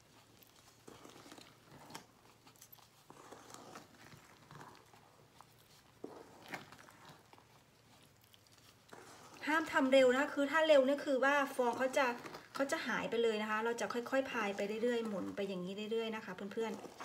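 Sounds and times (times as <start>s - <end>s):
spatula squishing and scraping batter: 0.0s - 17.0s.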